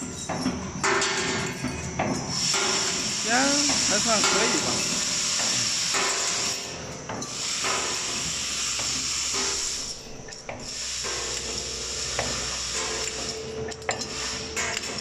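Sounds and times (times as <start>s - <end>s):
machine high hiss: 2.2s - 15.0s.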